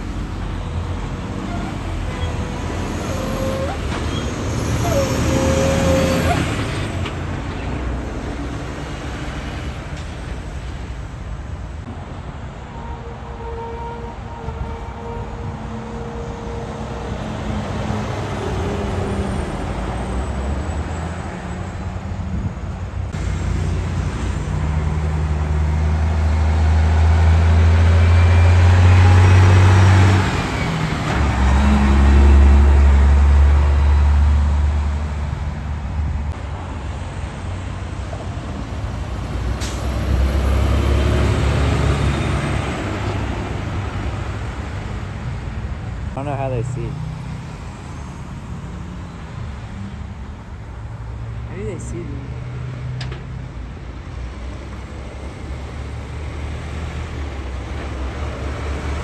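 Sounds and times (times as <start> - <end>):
diesel truck engine under load: 15.4 - 46.2.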